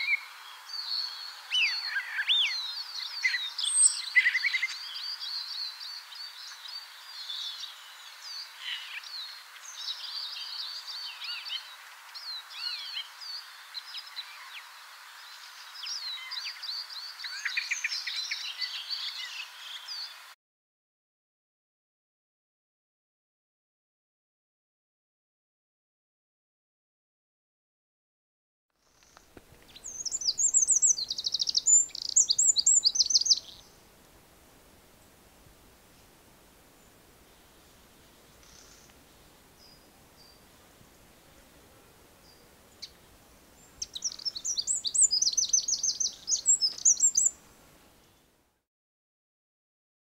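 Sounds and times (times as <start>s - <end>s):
songbird singing with trill: 0.0s - 20.3s, 28.9s - 33.8s, 43.6s - 47.4s
background hiss: 0.0s - 20.4s, 28.8s - 48.6s
starling singing: 29.8s - 33.6s, 43.8s - 47.3s.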